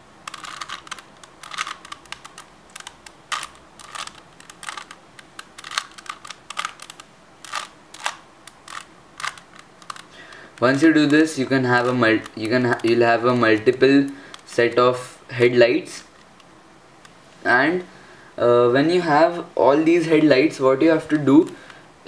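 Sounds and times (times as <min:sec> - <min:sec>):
plastic puzzle cube clicking: 0:00.2 - 0:14.6.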